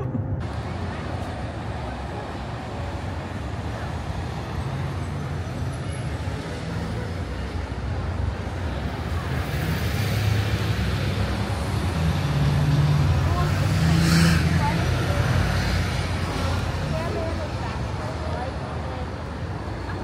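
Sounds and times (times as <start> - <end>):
cars driving past: 0.0 - 20.0.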